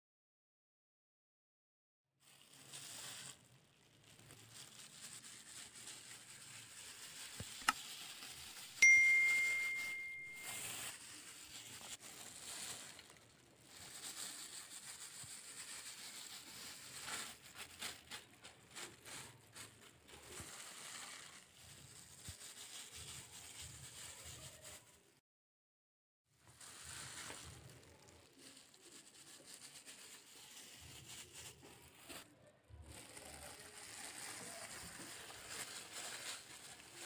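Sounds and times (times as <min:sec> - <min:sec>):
soft rustles of scattered herbs: 0:02.2 - 0:25.1, 0:26.4 - 0:37.0
bright bell ding: 0:08.8 - 0:10.7.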